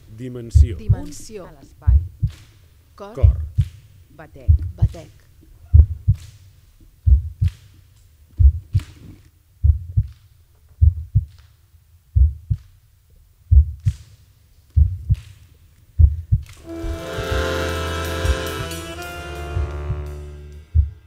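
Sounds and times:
heartbeat thumps: 0:00.6 - 0:01.2, 0:04.4 - 0:05.0, 0:05.7 - 0:06.2, 0:07.0 - 0:07.5, 0:08.4 - 0:08.8, 0:09.6 - 0:10.1, 0:10.8 - 0:11.3, 0:12.2 - 0:12.6, 0:13.5 - 0:13.9, 0:14.8 - 0:15.2, 0:16.0 - 0:16.4.

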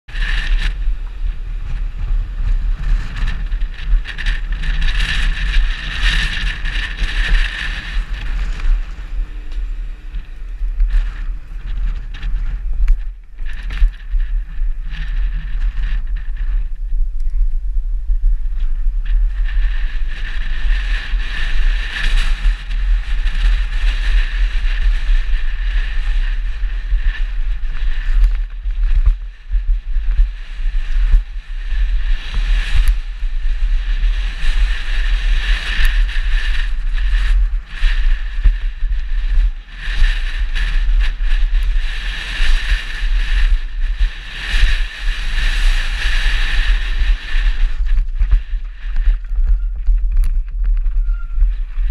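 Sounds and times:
wind rumble on microphone: 0:00.0 - 0:51.9
bike rattling: 0:00.1 - 0:51.9.

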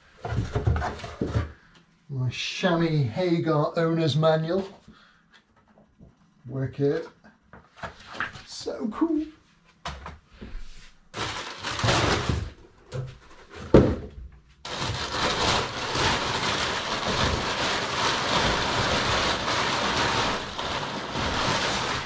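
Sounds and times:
packing paper rustling: 0:11.1 - 0:12.6, 0:14.6 - 0:22.0.

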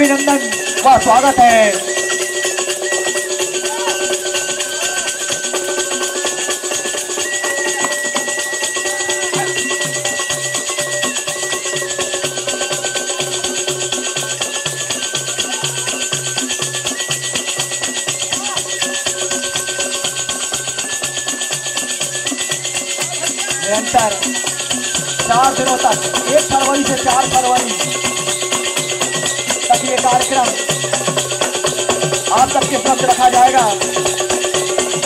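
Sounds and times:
held high melody line: 0:00.0 - 0:35.0
jangling metal percussion: 0:00.0 - 0:35.0
barrel drum beating: 0:23.7 - 0:35.0.

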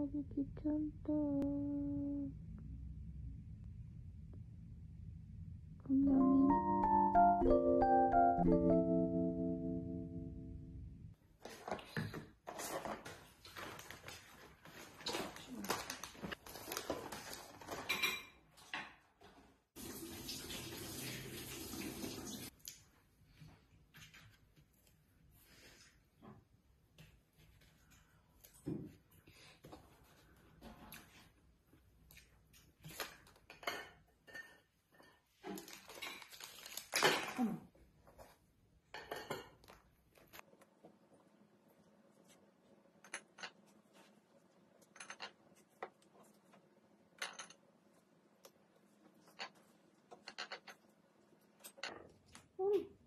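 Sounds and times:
dishes and utensils clinking: 0:33.5 - 0:36.3, 0:39.0 - 0:39.7.

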